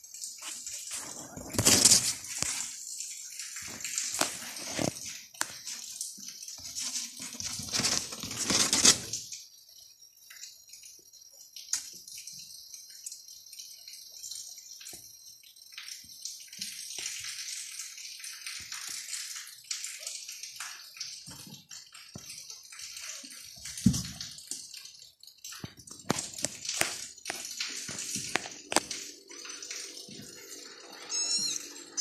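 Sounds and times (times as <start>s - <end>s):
kittens tapping on concrete floor: 21.2s - 24.7s.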